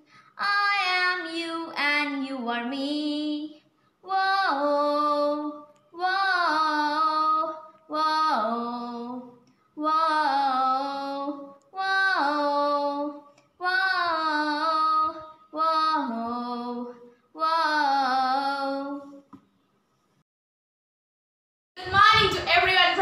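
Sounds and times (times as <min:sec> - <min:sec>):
breaths: 0:00.0 - 0:00.4, 0:03.6 - 0:04.0, 0:09.4 - 0:09.8, 0:16.9 - 0:17.4
girl singing unaccompanied: 0:00.0 - 0:19.2.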